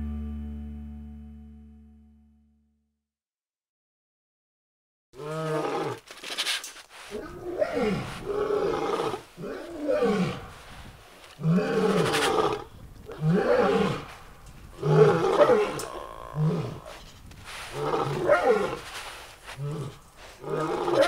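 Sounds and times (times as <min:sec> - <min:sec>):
big cat roaring: 0:05.2 - 0:06.0, 0:07.2 - 0:10.5, 0:11.4 - 0:17.0, 0:17.7 - 0:18.9, 0:19.5 - 0:21.0.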